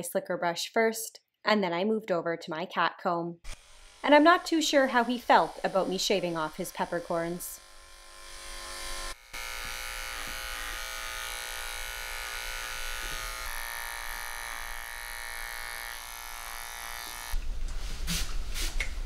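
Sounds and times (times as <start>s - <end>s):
electric clipper buzzing: 3.5s - 17.4s.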